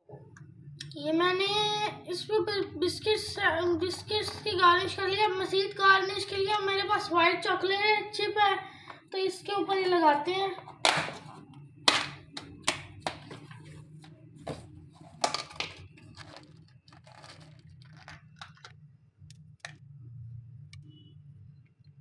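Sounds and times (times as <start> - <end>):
plastic tub clicks and rustles: 15.1 - 18.8
biscuit crumbling: 15.1 - 19.8.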